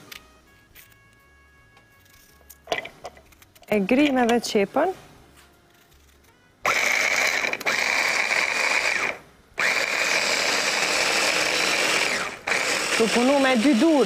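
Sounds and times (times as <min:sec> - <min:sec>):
food chopper motor whining: 0:06.6 - 0:14.0.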